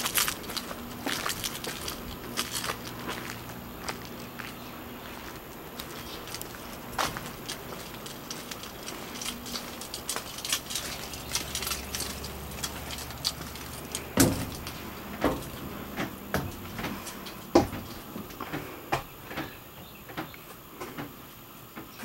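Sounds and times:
heavy footsteps climbing steps: 0.0 - 21.2
door handling clicks and rattles: 9.9 - 18.1.

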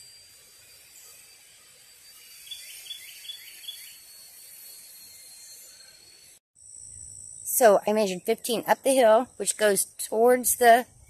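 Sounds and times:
faint outdoor hiss: 0.0 - 6.0, 6.6 - 11.0
thin high whine: 0.0 - 11.0
bird chirping: 2.3 - 4.1.

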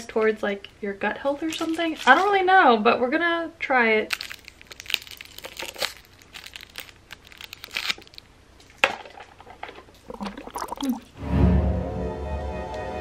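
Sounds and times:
plastic wrapper crinkling and tearing: 4.1 - 8.8.

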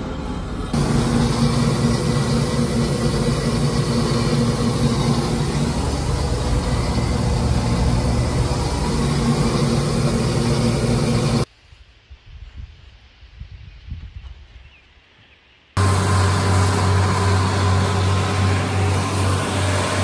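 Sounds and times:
combine harvester engine droning: 0.0 - 11.5, 15.8 - 20.0.

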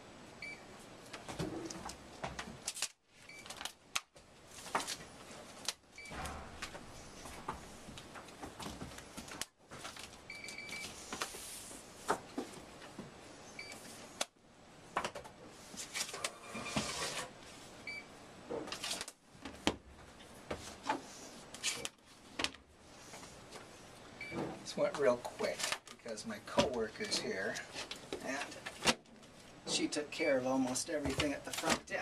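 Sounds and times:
paper rustling: 6.6 - 10.2, 18.7 - 19.2.

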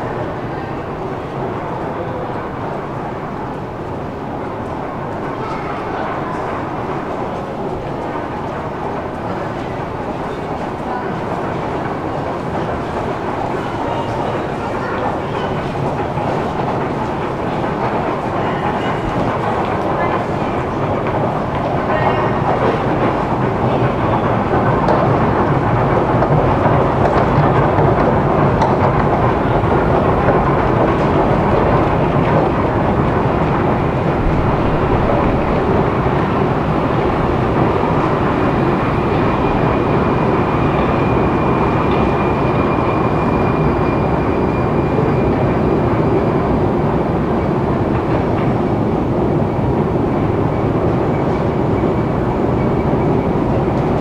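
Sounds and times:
escalator mechanical rumble: 0.0 - 54.0
clatter of moving steps: 2.1 - 54.0.

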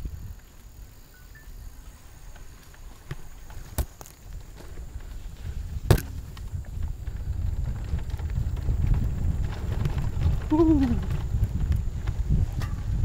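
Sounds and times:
wind rumble on microphone: 0.0 - 13.0
bike jolting knocks: 3.0 - 6.6.

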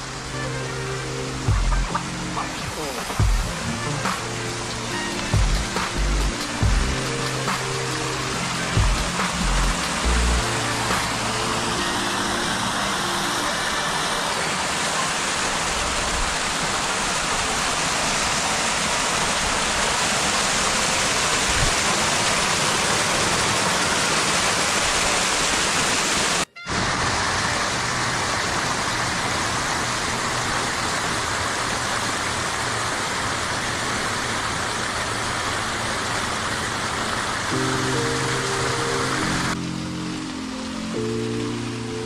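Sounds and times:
waterfall cascading over rocks: 0.0 - 42.0.

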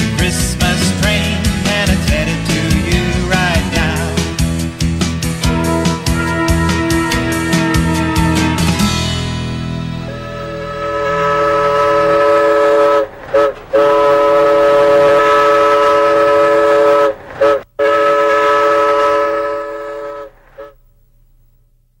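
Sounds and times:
train whistle blasts: 5.4 - 8.9, 10.0 - 20.8.

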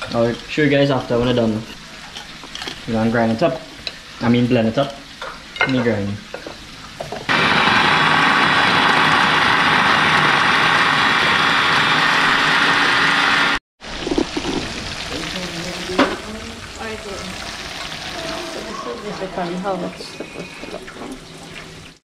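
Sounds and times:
electric food chopper running: 7.3 - 15.2
shrimp sizzling in oil: 13.8 - 20.8.

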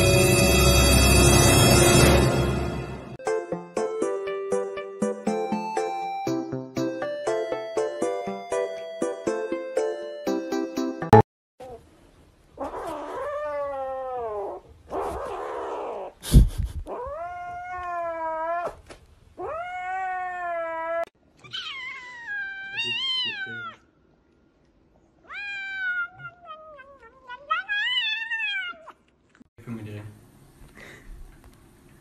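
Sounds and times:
cats meowing: 16.9 - 23.8, 25.2 - 29.1.

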